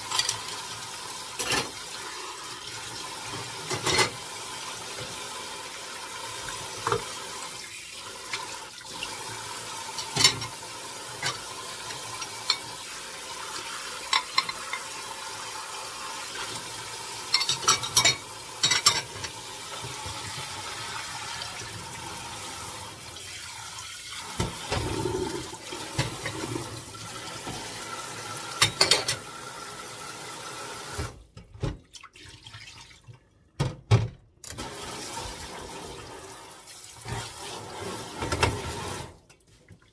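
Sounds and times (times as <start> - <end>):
dishes clinking against steel: 14.1 - 14.9, 17.3 - 19.4, 28.6 - 29.2.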